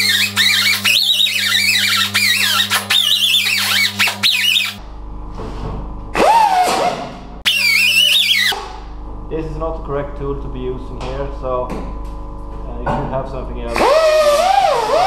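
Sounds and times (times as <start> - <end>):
air sander whining: 0.0 - 4.8, 6.2 - 8.9, 13.6 - 15.0.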